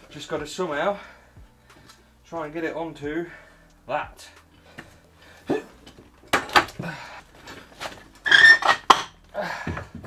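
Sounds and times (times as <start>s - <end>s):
man grunting and straining: 5.5s - 5.8s.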